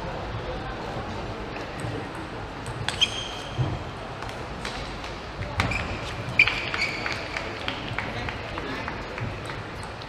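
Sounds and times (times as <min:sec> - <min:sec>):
shoes squeaking on floor: 0:02.9 - 0:03.8, 0:05.6 - 0:07.2.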